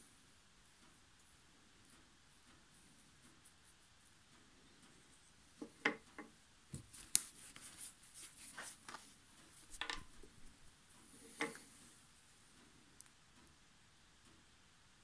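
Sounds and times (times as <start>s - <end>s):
wooden parts clicking and knocking: 5.6s - 6.8s, 9.6s - 10.5s
plastic glue bottle handled: 9.6s - 10.3s.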